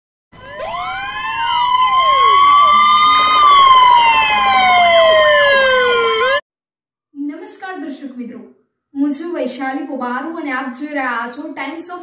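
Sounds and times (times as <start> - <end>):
siren wail: 0.4 - 6.4
steady high tone: 0.4 - 6.4
sweeping siren tones: 0.4 - 6.4.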